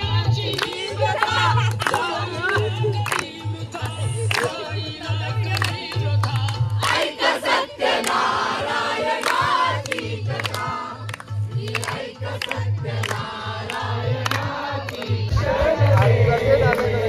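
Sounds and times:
group of people singing: 0.0 - 17.0
people clapping along: 0.0 - 17.0
music with low beat: 8.1 - 17.0.

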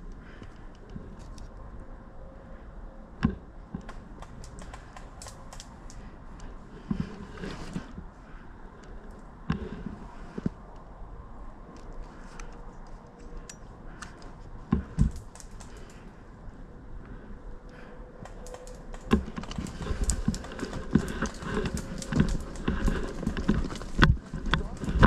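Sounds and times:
gear clicking: 18.2 - 25.0
footsteps on forest floor: 18.6 - 25.0.

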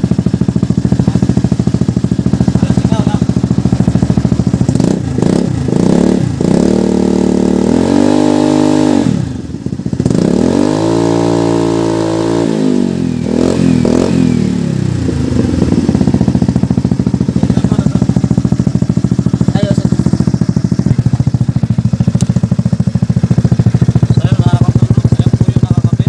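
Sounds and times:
scooter engine revving: 0.0 - 26.0.

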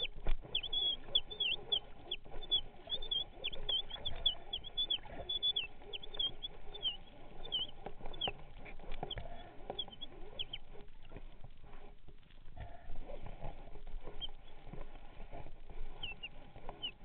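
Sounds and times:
high falling squeaks underwater: 0.0 - 10.8.

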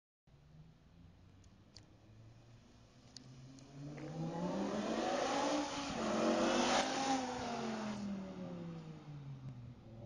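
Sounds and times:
car engine accelerating past: 2.1 - 10.0.

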